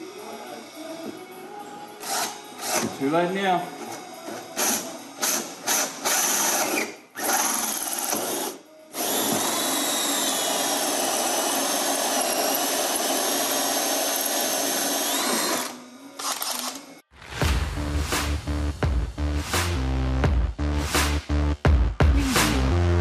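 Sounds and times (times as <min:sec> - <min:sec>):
cordless drill drilling into panel: 0:09.0 - 0:16.7.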